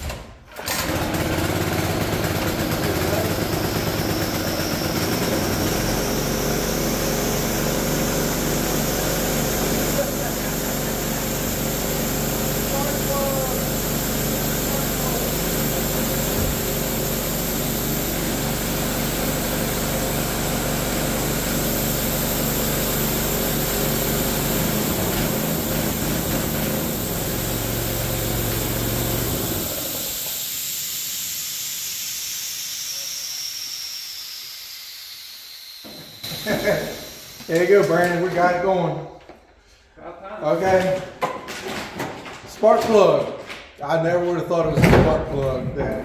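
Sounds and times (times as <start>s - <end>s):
air compressor engine running: 0.0s - 39.6s
hiss: 21.3s - 37.9s.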